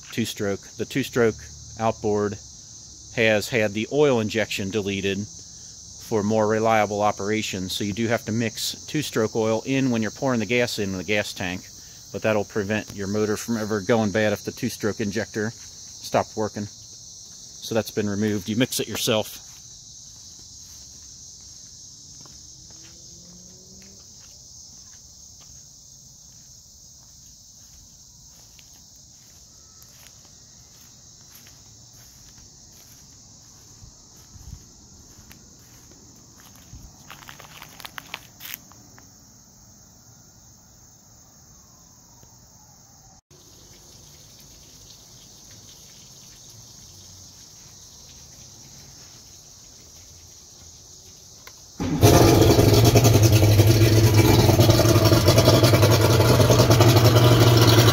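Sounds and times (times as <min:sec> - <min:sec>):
insects chirping: 0:00.0 - 0:57.9
outboard motor starting and running: 0:51.8 - 0:57.9.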